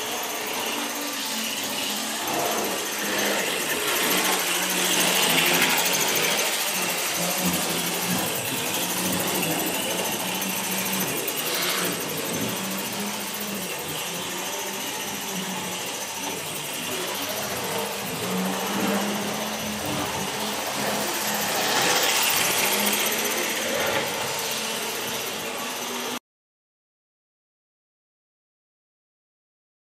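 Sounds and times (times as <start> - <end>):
model train motors whirring: 0.0 - 26.2.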